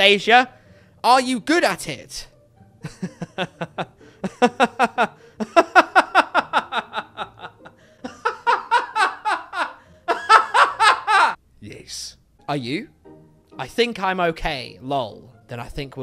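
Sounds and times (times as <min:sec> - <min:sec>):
short breaths: 0:00.5 - 0:01.0
man laughing hard: 0:02.8 - 0:11.4.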